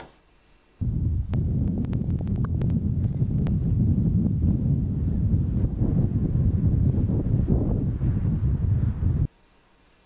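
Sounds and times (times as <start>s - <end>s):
wind buffeting microphone: 0.8s - 9.3s.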